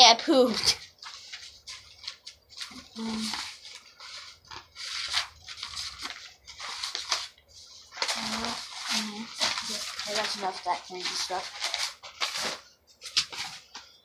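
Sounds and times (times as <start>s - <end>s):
paper rustling: 0.2s - 14.0s
person humming: 2.9s - 3.4s.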